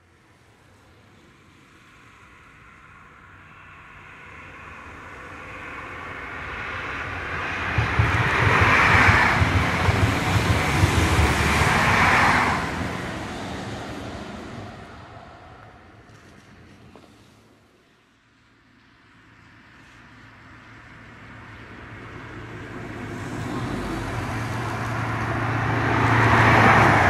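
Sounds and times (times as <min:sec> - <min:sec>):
diesel train passing at speed: 0:00.0 - 0:27.0
wheels rumbling on rail: 0:00.7 - 0:27.0.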